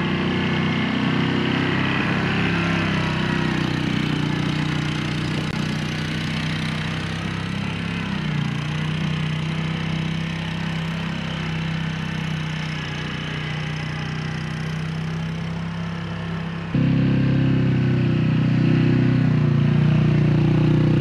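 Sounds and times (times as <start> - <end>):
quad bike engine running: 0.0 - 21.0.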